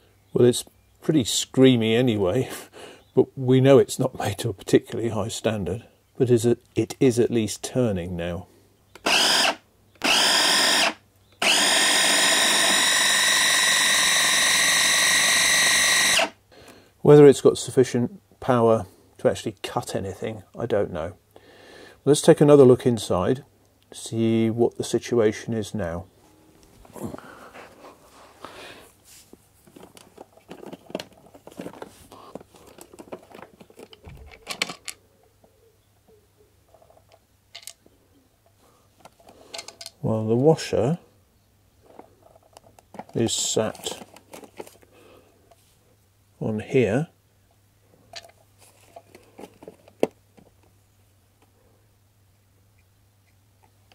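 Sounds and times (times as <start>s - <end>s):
food chopper motor whining: 9.0s - 16.3s.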